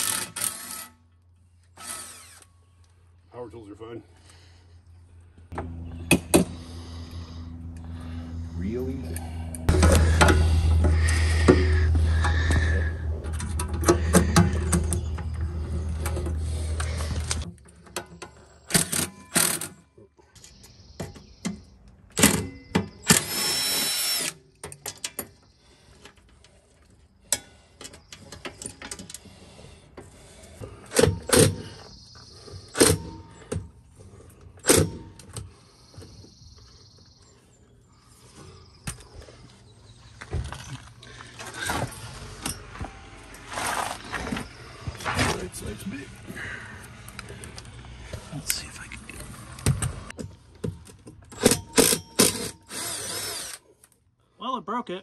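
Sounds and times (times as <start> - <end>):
cordless drill backing out screws: 50.9 - 53.6.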